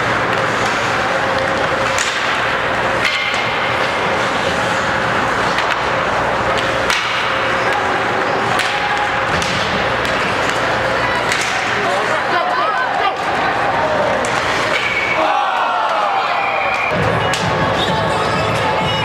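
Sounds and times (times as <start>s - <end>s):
stick hitting puck: 0.0s - 11.9s, 14.1s - 15.1s
arena noise: 0.0s - 19.0s.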